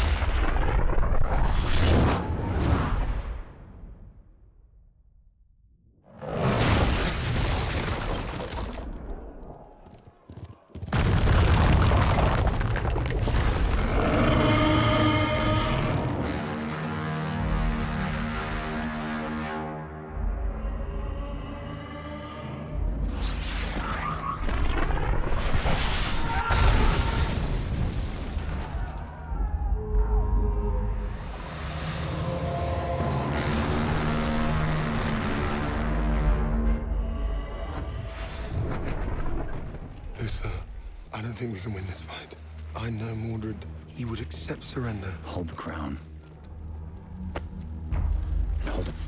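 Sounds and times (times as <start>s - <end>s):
explosions and booms: 0.0s - 3.3s, 10.9s - 14.3s.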